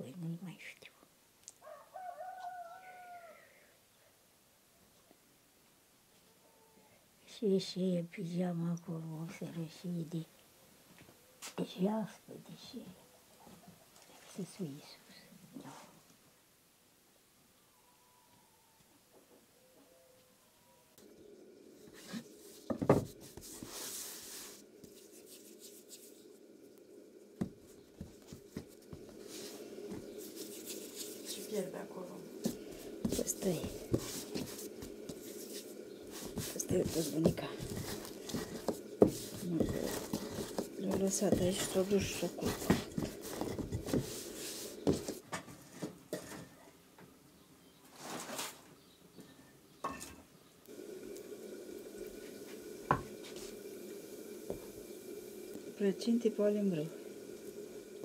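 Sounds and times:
low steady hum: 0:19.9 - 0:47.8, 0:49.2 - 0:58.0
wood fire crackling: 0:21.0 - 0:46.2, 0:50.6 - 0:58.0
rustling hiss: 0:21.0 - 0:46.5, 0:50.7 - 0:58.0.

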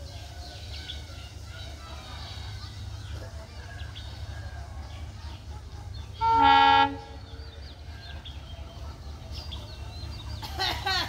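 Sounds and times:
diesel locomotive horn blast: 0:06.2 - 0:07.3.

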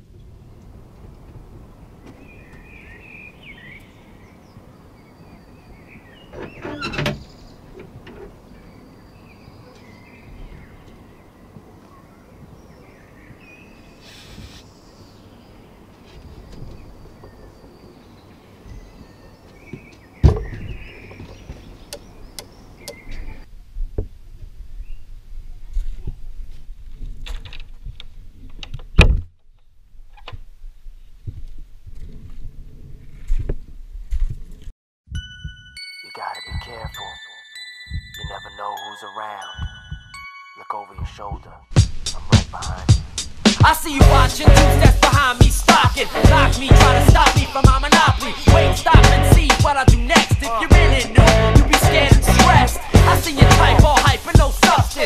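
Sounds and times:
birds chirping and singing: 0:01.9 - 0:23.5, 0:43.8 - 0:55.0
camera movement rumble: 0:25.3 - 0:34.7.

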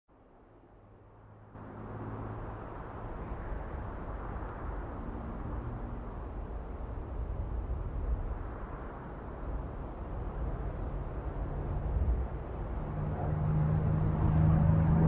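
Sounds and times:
distant propeller plane engine droning: 0:00.4 - 0:15.0.

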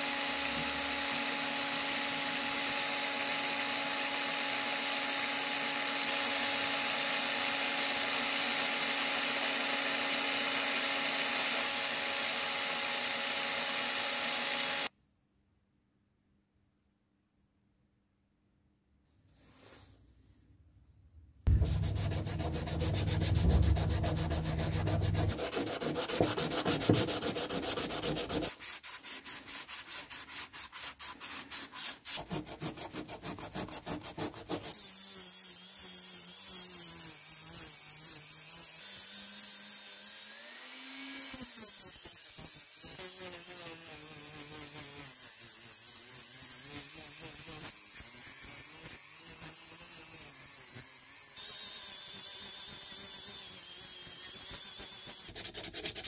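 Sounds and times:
rotary tool whining: 0:00.1 - 0:14.9
sandpaper rubbing on metal: 0:21.5 - 0:34.8, 0:54.2 - 0:56.0.

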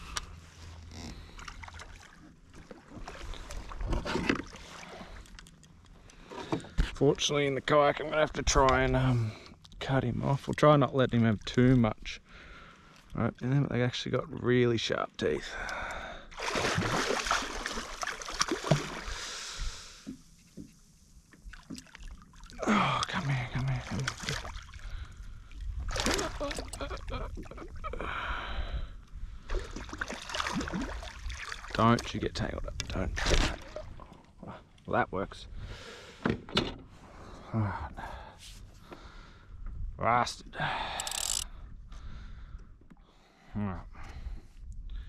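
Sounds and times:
water splashing and churning: 0:01.1 - 0:05.4, 0:16.2 - 0:19.4, 0:21.4 - 0:28.0, 0:29.4 - 0:32.2, 0:33.0 - 0:34.7
fishing gear knocks and clicks: 0:41.0 - 0:41.5.

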